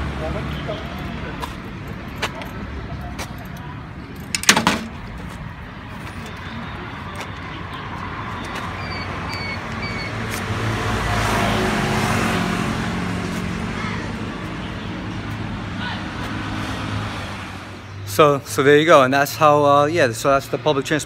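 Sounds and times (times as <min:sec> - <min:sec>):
vehicle passing: 0:00.0 - 0:04.3, 0:04.9 - 0:18.4
metal clanks of bike at dock: 0:04.2 - 0:05.1.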